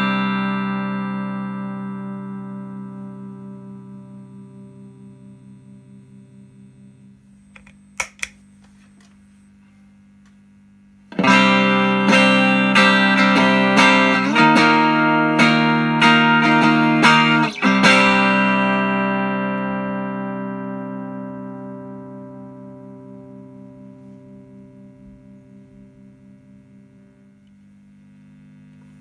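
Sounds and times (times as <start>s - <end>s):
overdriven guitar strummed chords: 0.0s - 8.3s, 11.1s - 29.0s
electric guitar chord: 0.0s - 8.4s, 11.1s - 29.0s
pedal switch clicks: 7.6s - 8.4s.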